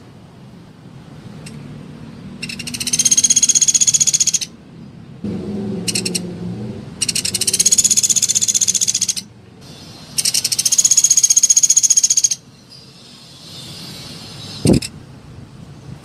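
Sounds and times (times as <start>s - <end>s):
woodpecker high trills: 2.4s - 4.5s, 5.8s - 6.3s, 7.0s - 14.7s.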